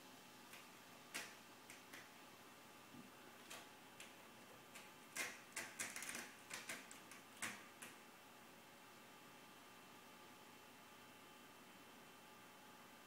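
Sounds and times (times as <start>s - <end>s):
kitten claws clicking on wood: 0.5s - 2.1s, 3.4s - 8.0s.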